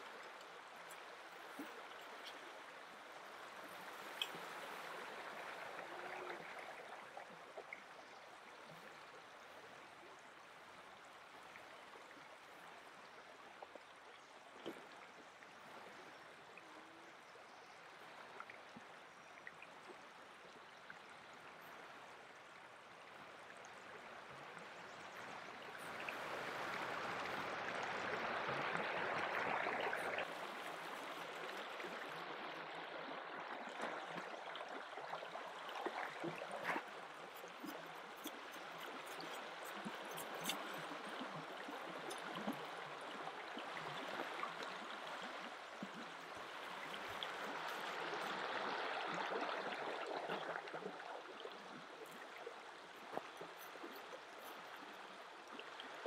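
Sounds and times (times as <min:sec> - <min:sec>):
light clicks and taps: 0:37.3 - 0:40.9.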